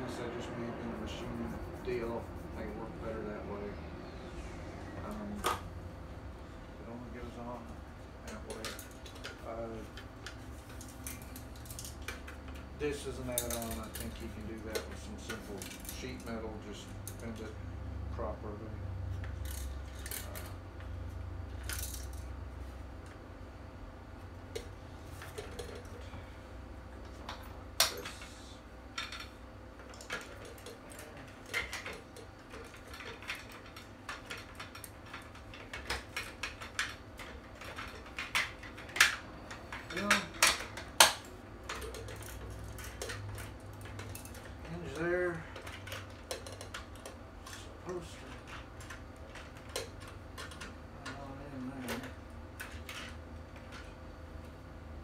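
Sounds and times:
plastic and metal parts clattering: 13.2 - 16.4, 29.0 - 54.0.

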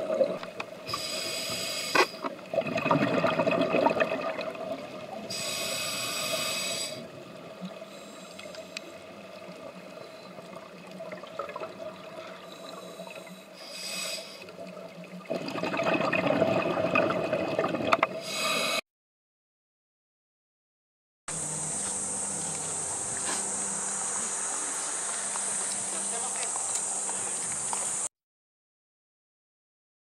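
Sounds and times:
regulator breathing hiss: 0.9 - 2.3, 5.3 - 7.2, 7.8 - 9.1, 12.2 - 14.6, 18.2 - 18.8, 21.3 - 28.1
exhaust bubbles rushing: 2.5 - 5.2, 15.2 - 18.0.

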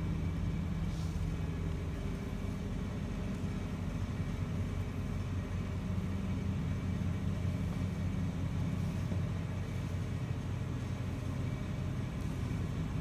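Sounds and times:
low room rumble: 0.0 - 13.0.

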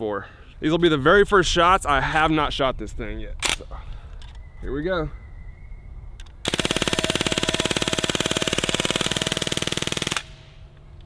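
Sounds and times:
bb gun firing full auto: 6.4 - 10.6.

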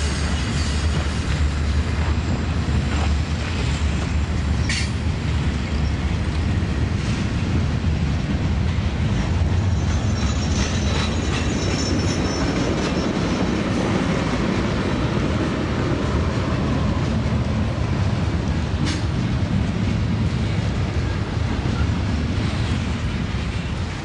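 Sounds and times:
model train rumbling: 0.0 - 24.0.

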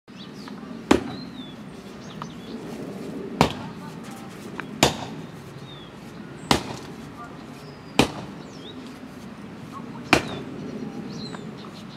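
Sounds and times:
shovel striking soil: 3.4 - 3.8, 4.6 - 5.2, 6.5 - 7.0, 8.0 - 8.4.

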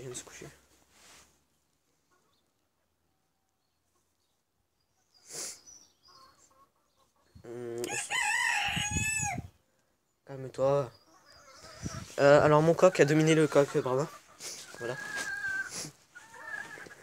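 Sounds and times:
rooster crowing: 7.9 - 9.5.

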